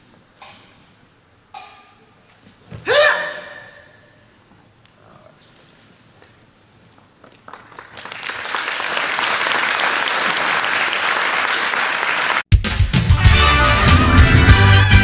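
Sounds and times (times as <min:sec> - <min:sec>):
audience applause: 0:07.2 - 0:12.5.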